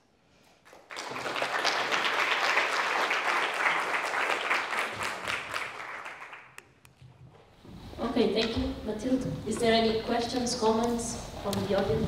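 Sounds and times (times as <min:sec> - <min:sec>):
audience applauding: 0:00.6 - 0:06.6.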